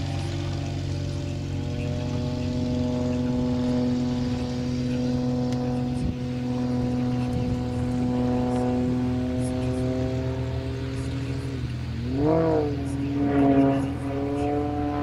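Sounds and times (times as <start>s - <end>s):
propeller plane engine drone: 0.0s - 15.0s.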